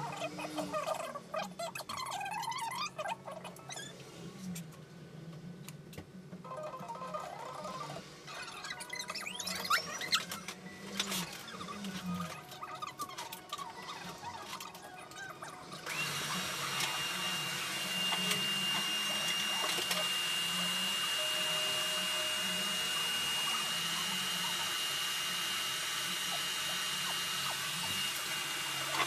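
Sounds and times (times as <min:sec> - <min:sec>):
motor appliance humming and whining: 0:00.0 - 0:29.0
faint squeaky chirps: 0:06.4 - 0:15.8.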